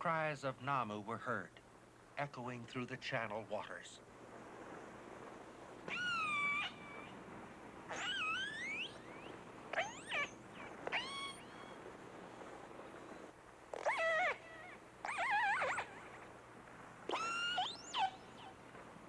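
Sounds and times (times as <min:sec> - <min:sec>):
killer whale calls: 0:07.9 - 0:11.8, 0:13.7 - 0:16.2, 0:17.1 - 0:18.6.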